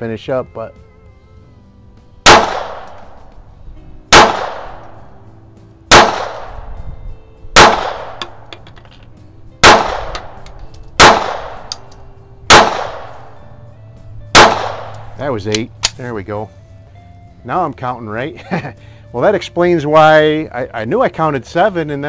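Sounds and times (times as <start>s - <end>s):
pistol shots echoing: 2.2s - 3.3s, 4.1s - 5.0s, 5.9s - 6.7s, 7.6s - 8.6s, 9.6s - 13.4s, 14.3s - 16.0s
faint metal clinks: 10.4s - 11.0s.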